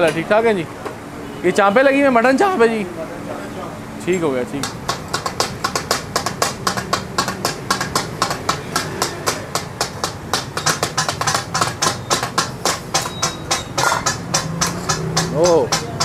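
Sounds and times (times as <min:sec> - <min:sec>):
metal spatulas clanging on griddle: 0:04.6 - 0:16.0.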